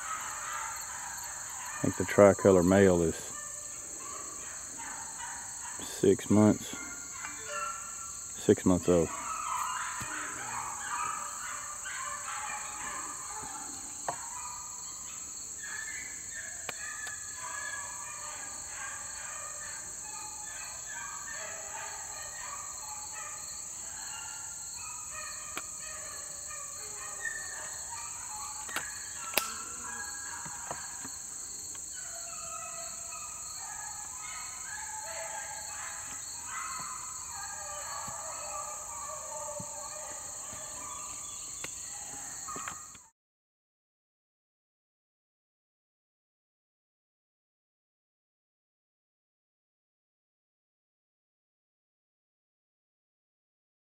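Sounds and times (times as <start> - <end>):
dogs baying: 0.0 - 43.0
high drone of insects: 0.0 - 43.0.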